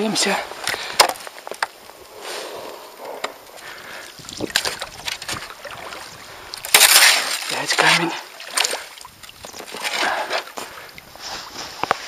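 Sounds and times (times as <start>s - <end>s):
water swishing: 3.6s - 11.8s
paddle splash: 4.2s - 11.8s
paddle knocking and scraping bottom: 4.3s - 6.0s, 6.6s - 12.0s.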